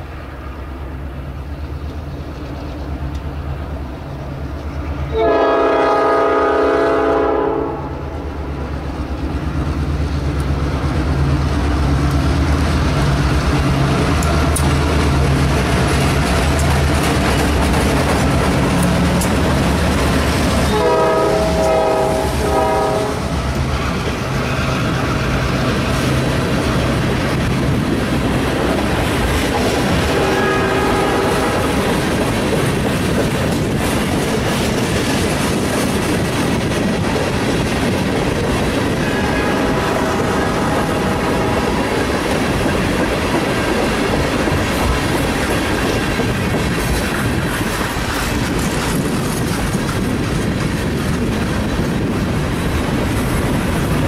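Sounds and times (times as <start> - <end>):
train cars rolling on rails: 0.0 - 54.0
train horn blasts: 5.1 - 8.2, 20.6 - 23.5, 30.0 - 32.0, 39.0 - 41.9.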